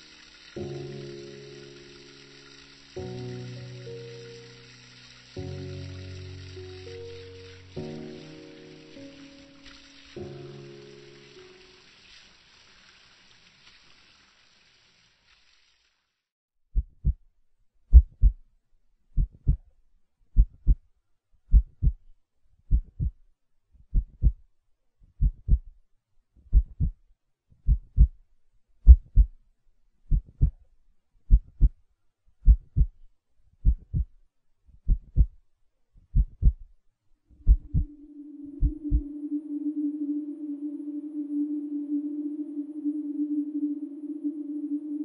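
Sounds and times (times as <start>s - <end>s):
low drone tone: 0.0s - 11.9s, 37.3s - 45.0s
heartbeat thumps: 16.8s - 17.2s, 17.9s - 18.4s, 19.2s - 19.7s, 20.4s - 20.8s, 21.5s - 22.1s, 22.7s - 23.2s, 23.9s - 24.4s, 25.2s - 25.7s, 26.5s - 27.0s, 27.6s - 28.2s, 28.8s - 29.4s, 30.1s - 30.6s, 31.3s - 31.8s, 32.4s - 33.0s, 33.6s - 34.2s, 34.8s - 35.4s, 36.1s - 36.7s, 37.4s - 38.0s, 38.6s - 39.1s.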